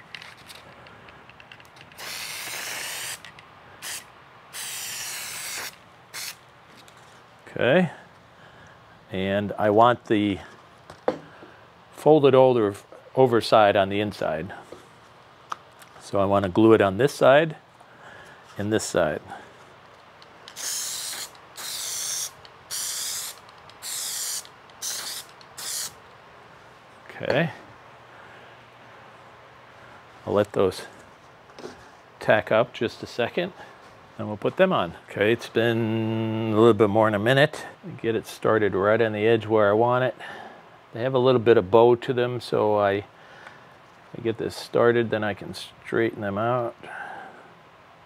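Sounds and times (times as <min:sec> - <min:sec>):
aerosol can spraying hiss: 0:02.0 - 0:03.2, 0:03.8 - 0:06.4, 0:20.5 - 0:26.0.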